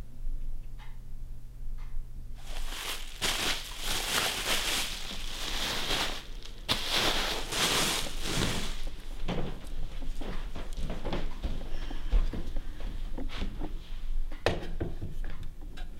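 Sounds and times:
packing wrap crinkling: 2.4s - 9.8s.

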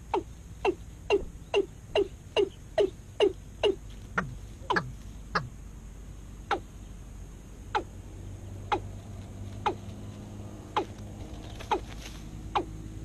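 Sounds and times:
watercock lure calls: 0.0s - 5.5s, 6.5s - 6.7s, 8.7s - 8.9s.

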